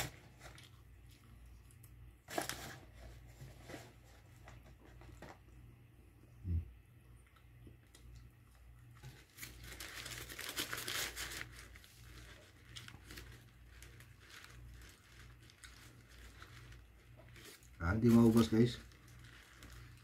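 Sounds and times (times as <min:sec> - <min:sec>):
steady low hum: 0:00.0 - 0:20.0
paper packaging crinkling: 0:02.2 - 0:05.4, 0:09.0 - 0:20.0.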